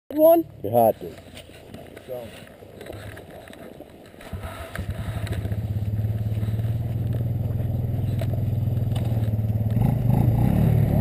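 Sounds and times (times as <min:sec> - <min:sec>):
small engine idling: 0:04.3 - 0:10.2.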